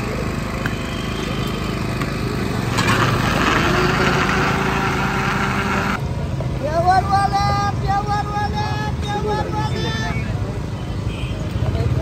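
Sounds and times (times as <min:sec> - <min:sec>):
electric blender running: 0:02.8 - 0:06.0.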